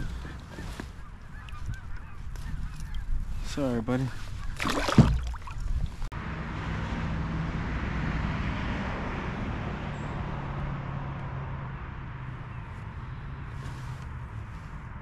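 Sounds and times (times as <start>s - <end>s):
vehicle passing with tyre hiss: 6.2s - 15.0s.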